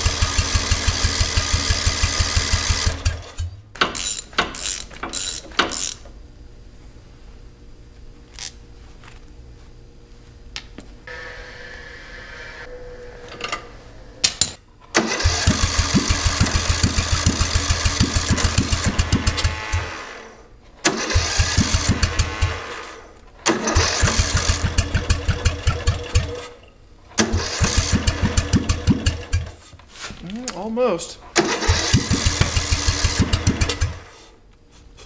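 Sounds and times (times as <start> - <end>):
mower engine cranking: 0.0 - 6.0, 14.9 - 19.9, 20.8 - 29.6, 31.3 - 34.1.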